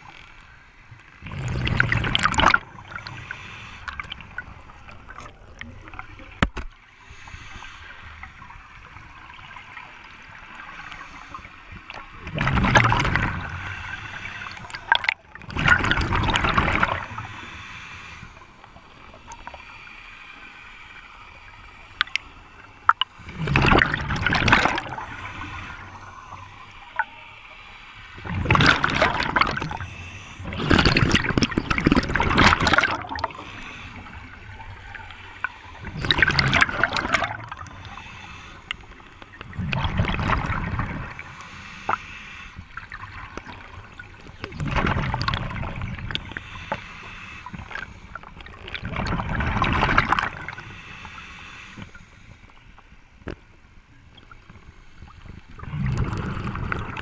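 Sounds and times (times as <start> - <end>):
underwater exhaust bubbles: 0.0 - 19.8, 21.7 - 27.1, 28.2 - 57.0
faint sharp clicks: 21.9 - 23.1.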